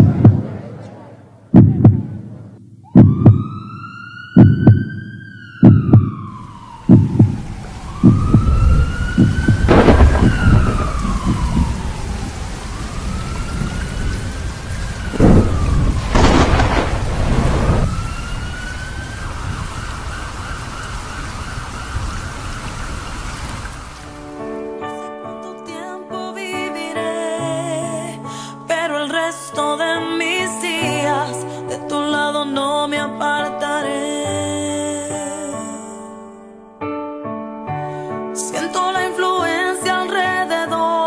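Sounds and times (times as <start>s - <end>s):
heavy low thumps: 0.0s - 0.8s, 1.5s - 3.5s, 4.4s - 5.0s, 5.6s - 6.3s, 6.9s - 11.8s, 15.2s - 17.9s
thunder crack: 0.0s - 3.7s, 4.4s - 23.7s
siren wailing: 2.8s - 24.2s
steady rain: 6.3s - 24.5s.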